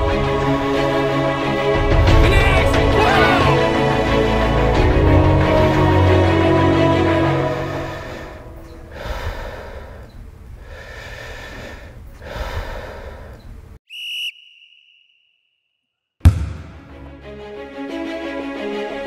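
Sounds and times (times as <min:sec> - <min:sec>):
heavy breathing: 0:07.4 - 0:13.6
shrill whistle blast: 0:13.9 - 0:15.6
loud impact with ringing tail: 0:16.2 - 0:17.1.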